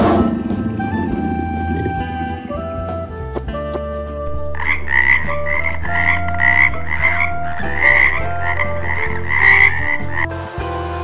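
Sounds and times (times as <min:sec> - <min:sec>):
background music with held notes: 0:00.0 - 0:11.0
frog croaking: 0:04.3 - 0:10.3.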